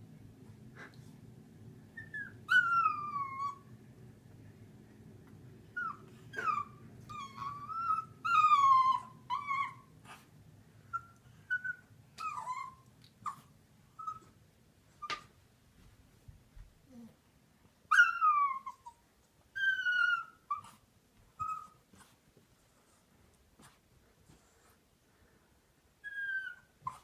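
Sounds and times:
puppy whining and whimpering: 1.9s - 3.8s, 5.7s - 10.3s, 10.9s - 15.3s, 17.9s - 22.2s, 26.0s - 27.0s
puppy yips: 2.0s - 3.7s, 5.8s - 9.9s, 10.9s - 14.4s, 17.9s - 20.8s, 21.4s - 22.1s, 26.0s - 27.0s.

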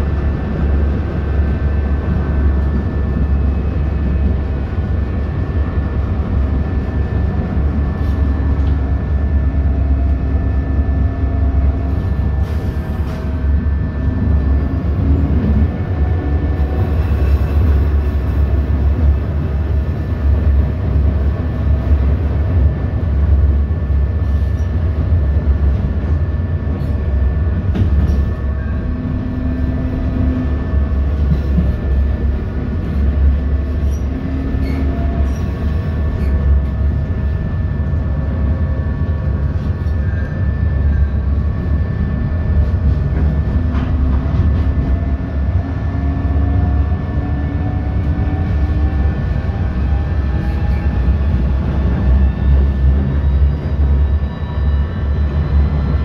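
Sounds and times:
tram wheels rumbling on rail: 0.0s - 56.0s.

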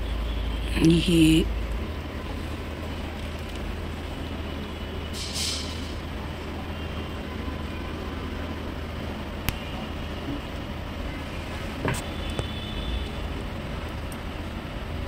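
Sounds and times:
electrical hum with fan noise: 0.0s - 15.0s
short hiss: 5.2s - 5.9s.

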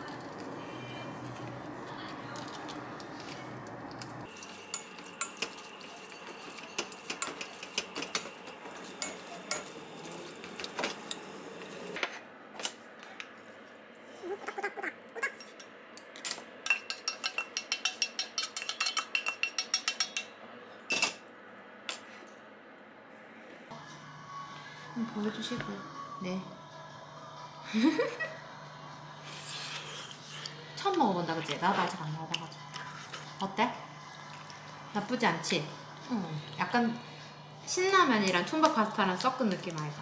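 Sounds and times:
utensils clinking against pot: 3.9s - 12.8s, 15.2s - 21.2s.

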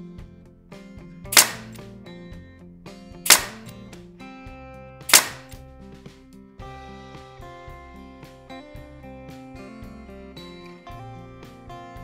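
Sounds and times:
background music: 0.0s - 12.0s
nail gun firing: 1.3s - 1.8s, 3.3s - 3.7s, 5.1s - 5.6s.

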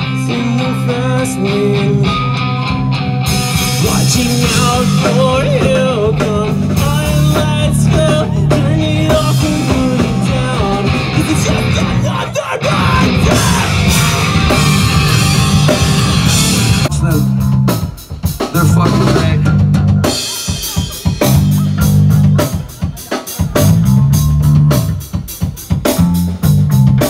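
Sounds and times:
person singing: 0.0s - 2.4s, 3.6s - 17.1s
drums: 0.0s - 27.0s
electric guitar: 0.0s - 27.0s.

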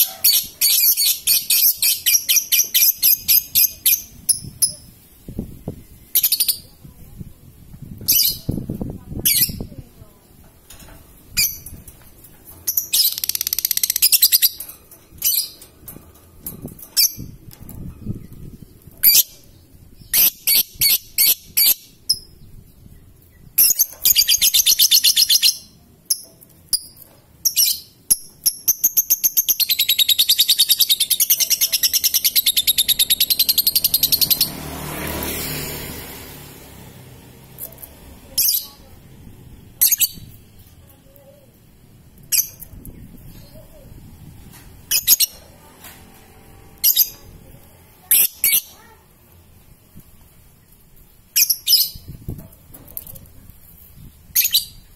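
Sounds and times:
lovebird chirping and trilling: 0.0s - 6.8s, 7.9s - 10.4s, 11.2s - 11.9s, 12.6s - 15.7s, 16.4s - 34.6s, 39.8s - 40.6s, 42.2s - 44.0s, 44.8s - 45.5s, 46.8s - 47.4s, 48.0s - 49.0s, 51.3s - 52.3s, 54.0s - 54.9s.

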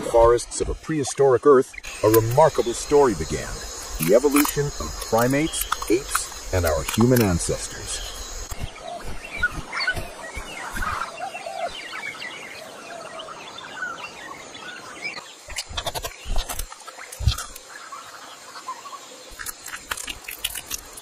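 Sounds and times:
birds chirping: 0.0s - 21.0s
animal calls: 1.8s - 12.0s.

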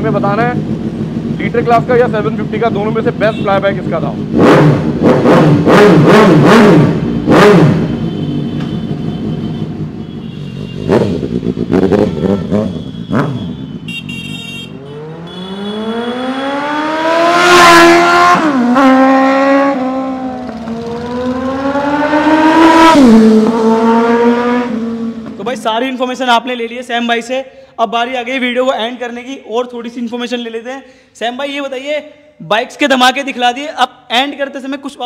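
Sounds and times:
motorcycle engine revving: 0.0s - 25.5s.

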